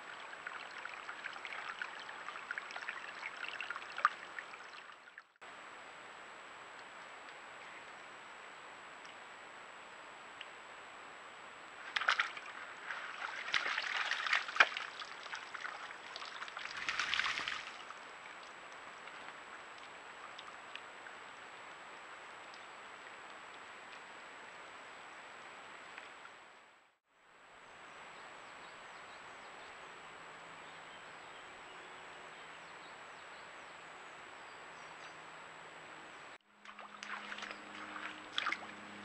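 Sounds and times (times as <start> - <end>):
faint steady hiss: 0.0 - 39.0
splashing and squelching mud: 11.8 - 20.7, 36.6 - 39.0.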